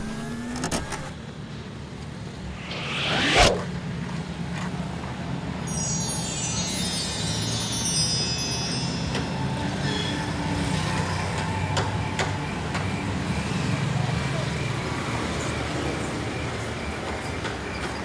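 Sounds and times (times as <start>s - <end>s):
chime tones cascading: 5.7s - 11.2s.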